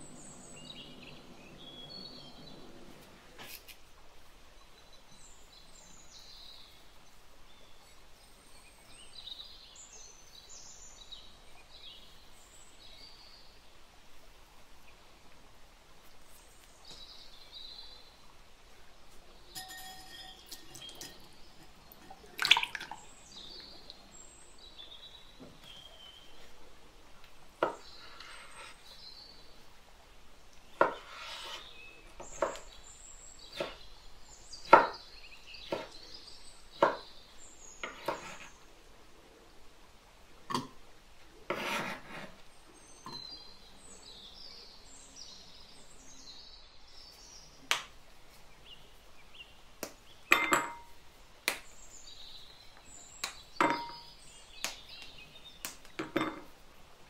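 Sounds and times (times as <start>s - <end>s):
utensils clinking on glass bowls: 19.5s - 22.8s, 50.3s - 50.9s, 53.6s - 54.1s, 56.0s - 56.5s.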